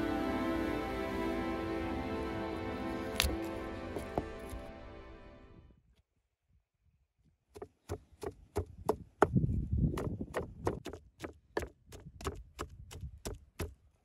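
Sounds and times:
pestle pounding in wooden mortar: 0:07.6 - 0:13.8.

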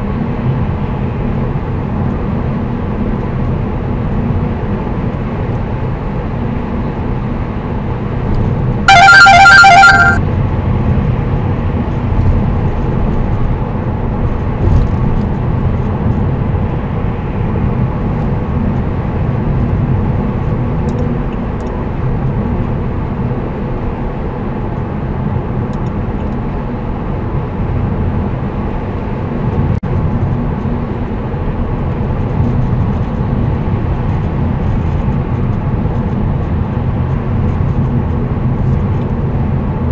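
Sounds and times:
road and tyre noise in car cabin: 0:00.0 - 0:39.9
rapid loud electronic beeps: 0:08.9 - 0:10.2.

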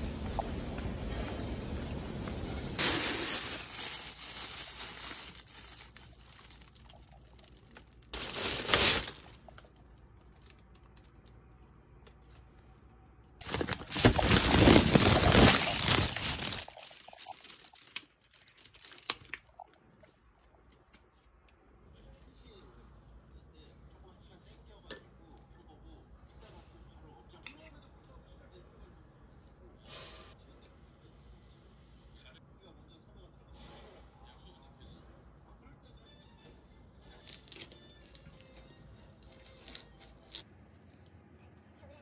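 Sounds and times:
plastic bag crinkling: 0:02.8 - 0:11.3, 0:13.4 - 0:19.7.

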